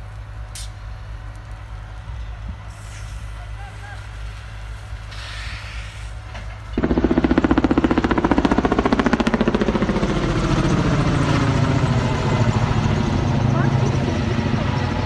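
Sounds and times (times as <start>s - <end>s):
helicopter rotor chopping: 6.8s - 15.0s.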